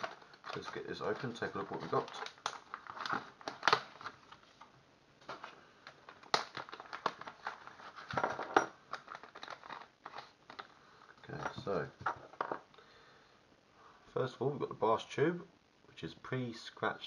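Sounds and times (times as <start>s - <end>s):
plastic packaging crinkling: 0.0s - 10.7s.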